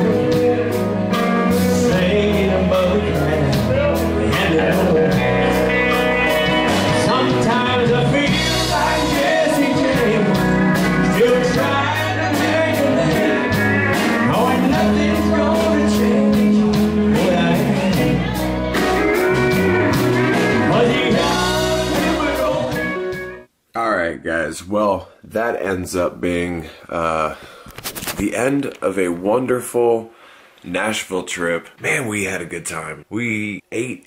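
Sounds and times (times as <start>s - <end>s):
man singing: 0.0s - 23.1s
country band playing: 0.0s - 23.5s.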